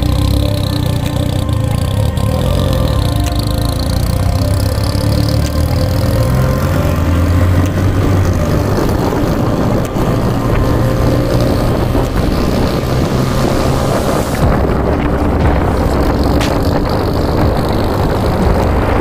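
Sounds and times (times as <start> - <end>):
car engine drone: 0.0 - 19.0
tyres on wet road: 0.0 - 19.0.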